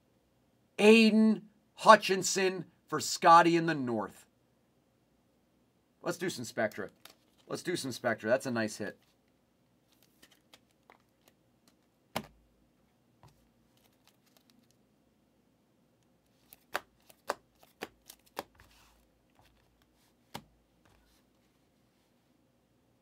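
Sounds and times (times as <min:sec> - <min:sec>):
cards and plastic cases handled: 0:06.7 - 0:07.7, 0:09.0 - 0:14.8, 0:16.0 - 0:21.7.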